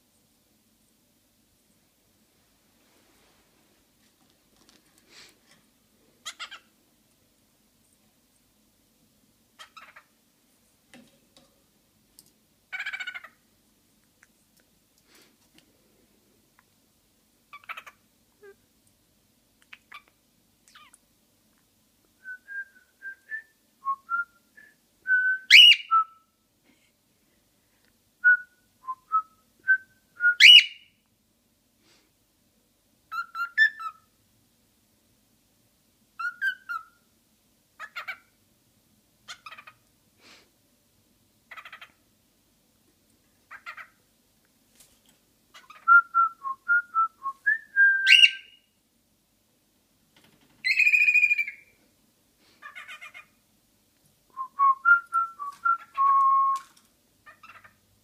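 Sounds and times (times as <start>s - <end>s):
cockatiel whistling and chirping: 25.4s - 26.1s, 30.3s - 30.9s, 33.1s - 34.0s, 36.2s - 37.0s, 45.6s - 48.6s, 50.6s - 51.7s, 54.6s - 56.6s.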